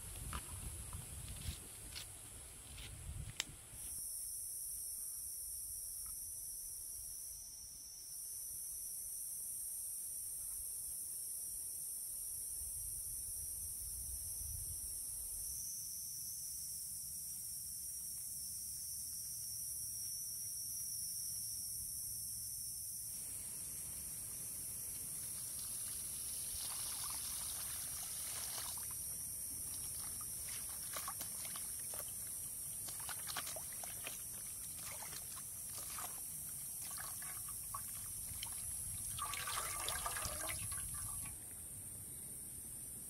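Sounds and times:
water splashing and dripping: 25.8 - 41.4.

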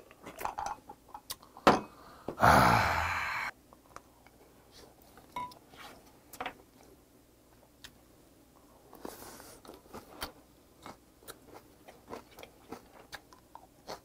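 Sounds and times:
breathy exhale: 1.9 - 3.5
chewing: 8.9 - 14.0.

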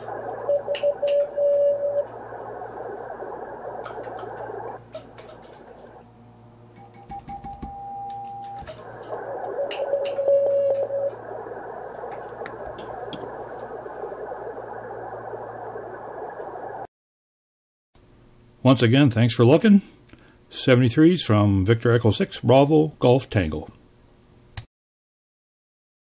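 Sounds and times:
clicks: 0.0 - 6.0, 6.7 - 16.9
receiver hiss: 0.0 - 16.9.

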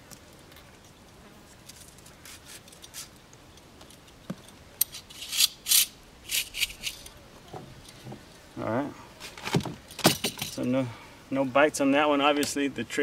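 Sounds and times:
hands rustling and scraping: 0.0 - 7.2
sharp scrapes: 4.9 - 7.1.

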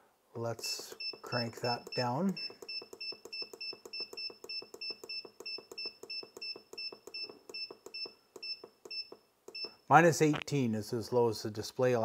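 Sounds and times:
short high control panel beeps: 1.0 - 9.8.

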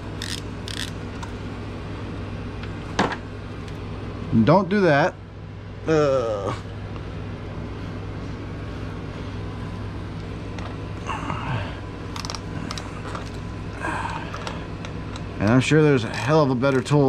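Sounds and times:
steady low hum: 0.0 - 17.0
ratchet clicking: 0.2 - 1.0.

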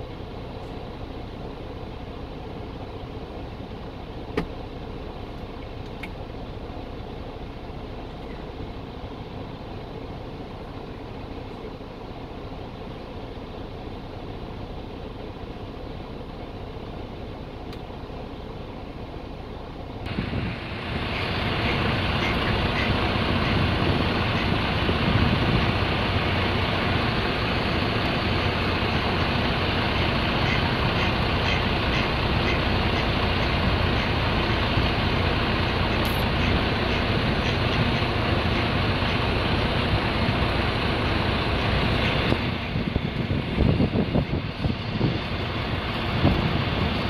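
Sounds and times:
motor vehicle engine rumble: 0.0 - 47.0.

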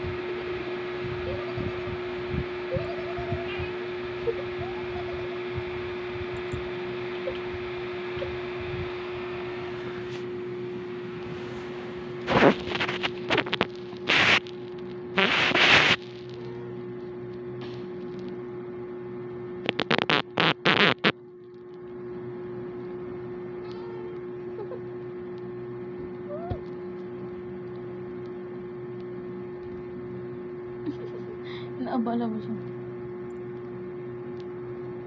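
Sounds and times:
low electrical hum: 0.0 - 35.0
rustling and scraping handling noise: 11.2 - 17.2.

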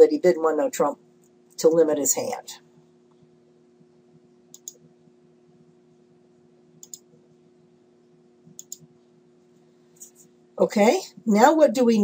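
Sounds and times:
steady low hum: 0.0 - 12.0
computer mouse clicks: 4.5 - 4.8, 6.8 - 7.1, 8.5 - 8.9.

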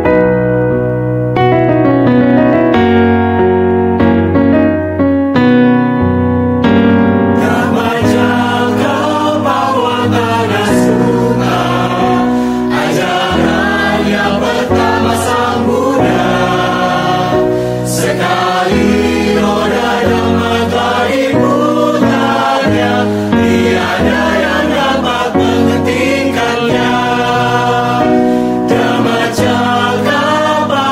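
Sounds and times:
mixed choir singing: 7.4 - 30.9.

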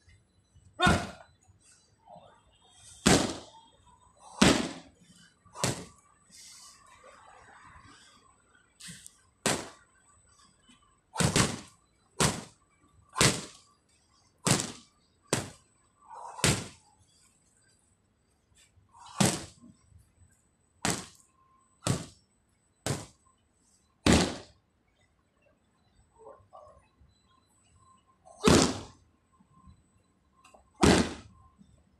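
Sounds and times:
punches smacking pads: 0.8 - 1.2, 3.0 - 3.5, 4.4 - 4.8, 5.6 - 5.9, 9.4 - 9.8, 11.2 - 12.6, 13.2 - 13.6, 14.4 - 15.6, 16.4 - 16.8, 19.1 - 19.6, 20.8 - 21.2, 21.8 - 22.2, 22.8 - 23.2, 24.0 - 24.5, 28.4 - 29.0, 30.8 - 31.3.

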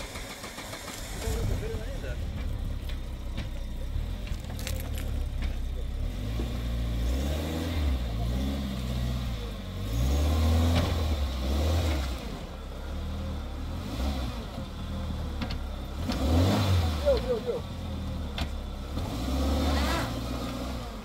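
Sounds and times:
car engine revving: 0.0 - 21.0.

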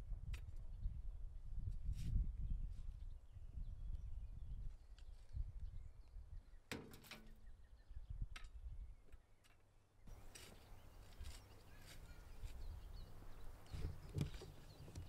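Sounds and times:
shovel scraping earth: 10.1 - 12.7.

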